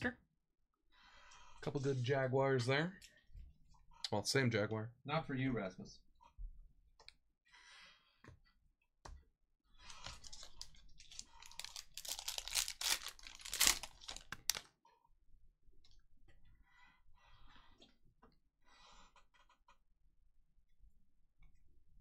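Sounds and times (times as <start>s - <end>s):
card pack wrapper tearing: 10.2s - 14.6s.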